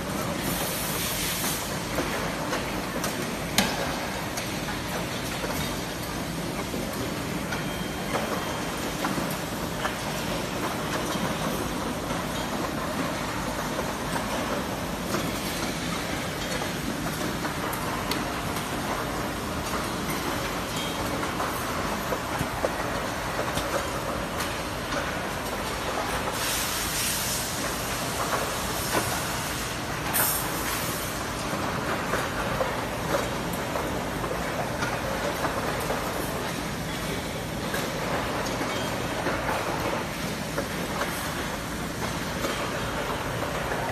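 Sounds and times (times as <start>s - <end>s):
machine hiss: 0.4s - 1.8s, 26.3s - 31.2s.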